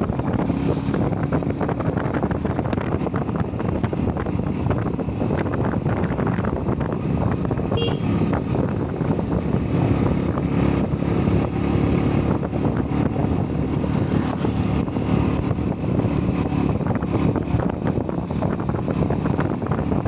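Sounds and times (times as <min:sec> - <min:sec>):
motorcycle engine running: 0:00.0 - 0:20.0
wind buffeting microphone: 0:00.0 - 0:20.0.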